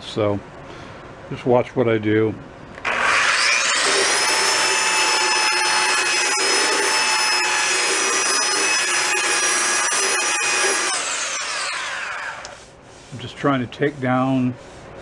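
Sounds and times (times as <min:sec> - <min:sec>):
belt sander whining: 0:02.8 - 0:12.7
belt sanding painted wood: 0:03.6 - 0:15.0.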